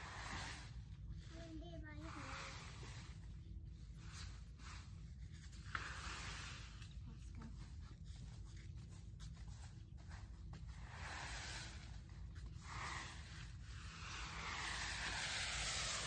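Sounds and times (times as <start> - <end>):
rake rustling through leaves: 0.0 - 16.0
rake scraping paving stones: 0.0 - 16.0.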